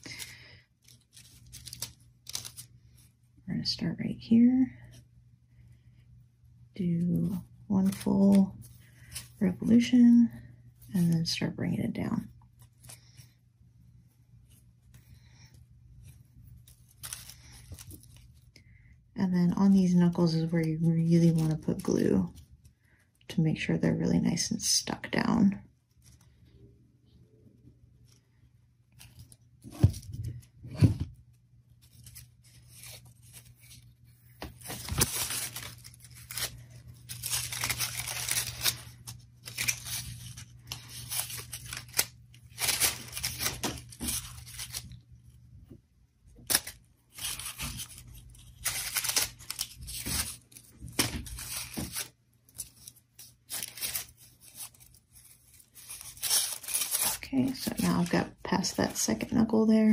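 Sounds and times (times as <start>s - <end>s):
crepe paper rustling: 0.0s - 3.2s, 7.2s - 11.5s, 14.4s - 18.6s, 19.7s - 22.6s, 28.9s - 45.0s, 46.4s - 59.4s.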